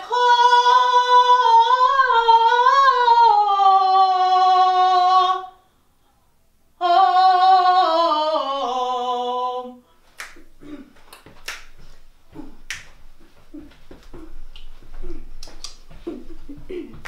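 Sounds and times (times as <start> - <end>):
woman singing wordless phrase: 0.0 - 5.6, 6.8 - 9.8
finger snaps: 10.2 - 10.5, 11.1 - 11.8, 15.4 - 15.8.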